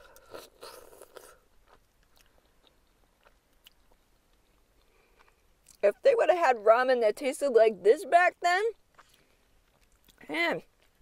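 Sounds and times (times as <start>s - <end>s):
person slurping noodles: 0.0s - 1.4s
person chewing: 0.0s - 5.8s, 8.8s - 11.0s.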